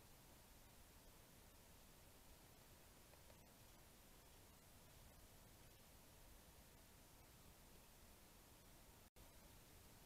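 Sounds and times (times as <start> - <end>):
faint hiss: 0.0 - 10.0.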